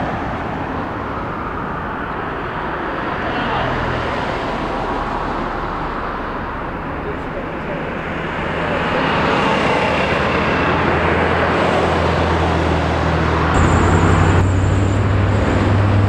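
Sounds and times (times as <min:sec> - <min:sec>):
road traffic noise: 0:00.0 - 0:16.0
vehicle engine running: 0:13.3 - 0:16.0
thin high whine: 0:13.6 - 0:16.0.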